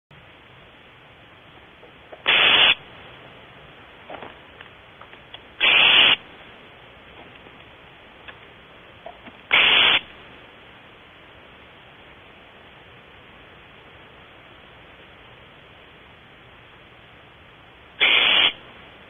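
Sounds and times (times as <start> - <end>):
owl nestling hissing calls: 2.2 - 2.8, 5.6 - 6.2, 9.1 - 10.1, 18.0 - 18.6.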